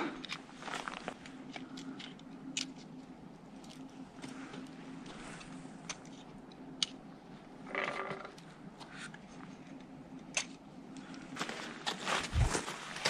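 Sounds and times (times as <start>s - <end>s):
scuffing on snow and rock: 0.6s - 1.2s, 11.4s - 13.0s.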